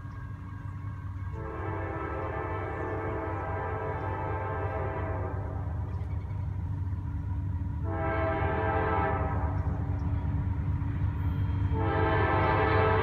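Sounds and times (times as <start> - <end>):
train rumble: 0.0 - 13.0
train air horn blasts: 1.3 - 5.8, 7.8 - 9.8, 11.5 - 13.0.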